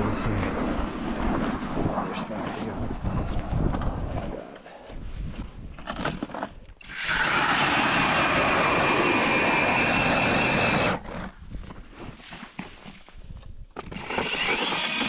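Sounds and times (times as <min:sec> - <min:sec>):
knocks and scraping: 0:00.2 - 0:06.8, 0:10.6 - 0:15.0
electric ice auger drilling: 0:06.8 - 0:11.3, 0:13.8 - 0:15.0.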